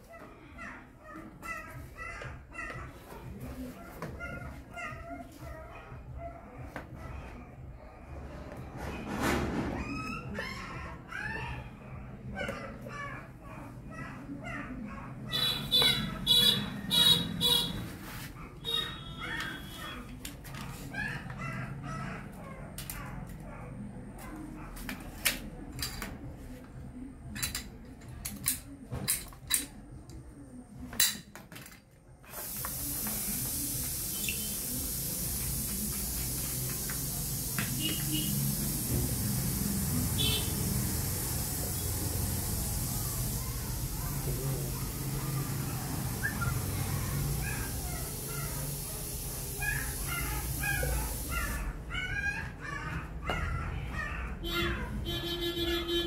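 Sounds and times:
steady hiss: 0:32.4 - 0:46.1.

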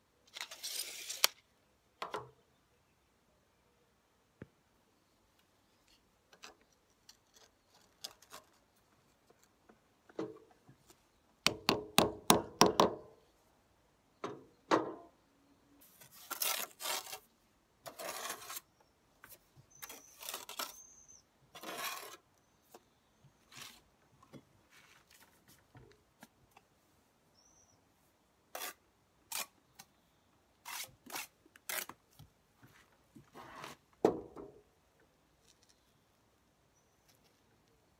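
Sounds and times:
trowel scraping brick on mortar: 0:16.0 - 0:18.7, 0:19.7 - 0:22.3, 0:28.5 - 0:29.6, 0:30.6 - 0:32.0.

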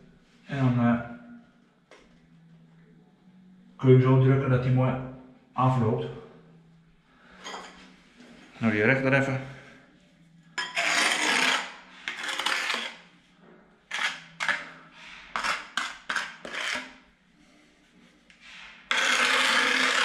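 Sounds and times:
trowel scraping tile adhesive: 0:10.6 - 0:13.1, 0:13.9 - 0:17.0, 0:18.9 - 0:20.0.

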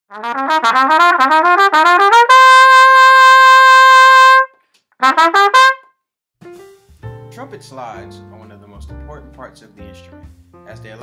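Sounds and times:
solo trumpet playing: 0:00.1 - 0:05.9.

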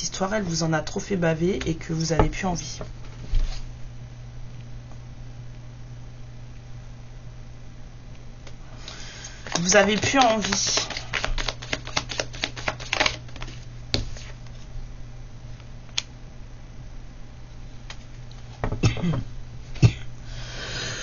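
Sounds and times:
cards being shuffled: 0:08.8 - 0:14.4.

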